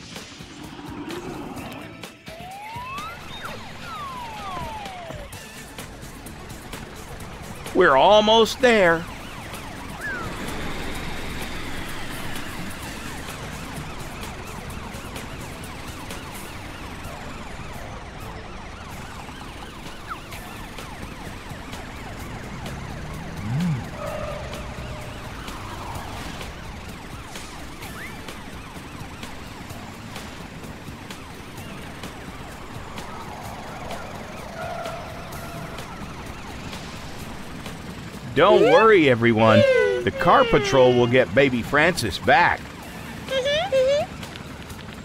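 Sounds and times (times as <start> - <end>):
vehicles driving: 0.0 - 45.0
cartoon sirens wailing: 0.6 - 44.2
low rising and falling sound: 22.2 - 26.4.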